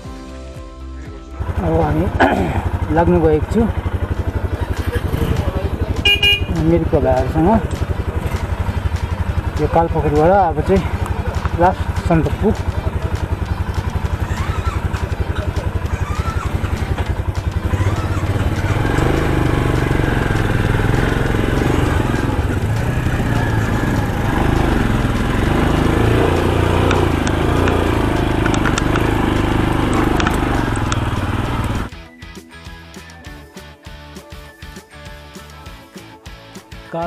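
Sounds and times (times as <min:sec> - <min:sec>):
motorcycle engine running: 0:01.3 - 0:32.0.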